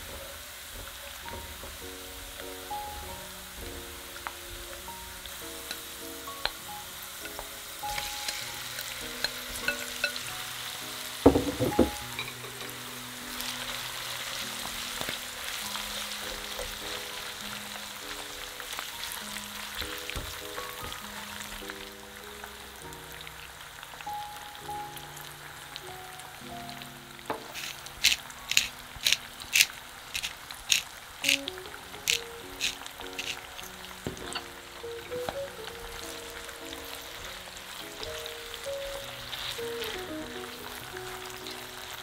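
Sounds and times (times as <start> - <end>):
garlic sizzling in oil: 0.0 - 42.0
soft background music: 0.0 - 42.0
shrimp splattering in hot oil: 7.3 - 12.7, 27.3 - 42.0.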